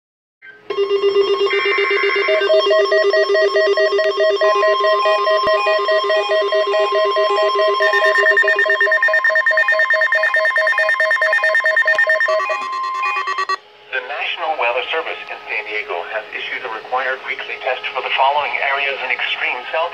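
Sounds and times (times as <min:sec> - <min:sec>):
electronic alert beeps: 0:01.4 - 0:13.6.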